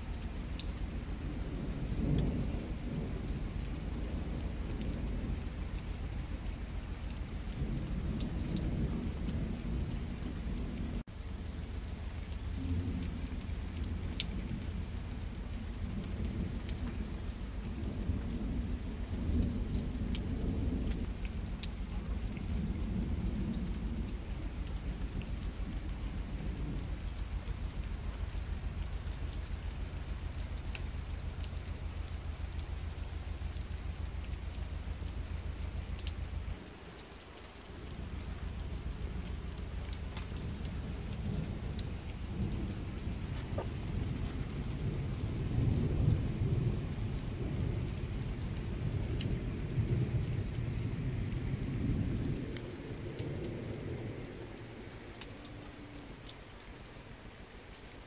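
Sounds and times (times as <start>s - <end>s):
rain falling: 0.0s - 58.0s.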